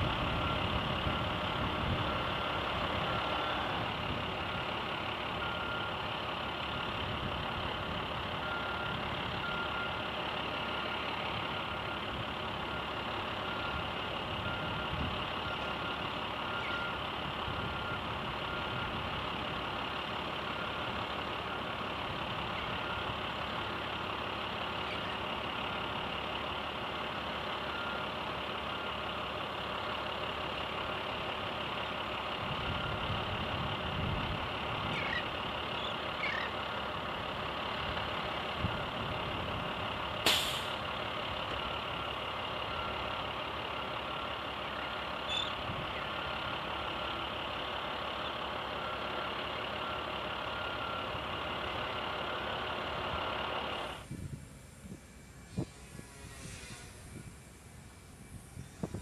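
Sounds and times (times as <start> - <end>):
distant heavy machinery running: 0.0 - 59.0
reversing beeper beeps: 0.4 - 3.8, 5.4 - 6.0, 8.4 - 10.0, 10.6 - 19.0, 22.5 - 23.8, 27.6 - 29.1, 32.6 - 33.1, 48.7 - 51.3.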